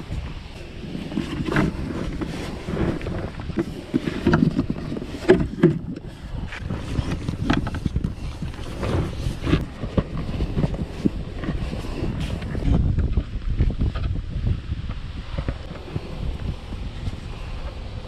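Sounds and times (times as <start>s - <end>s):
rubbing against inflatable boat: 0.0s - 12.9s
wind rumbling on microphone: 0.0s - 18.0s.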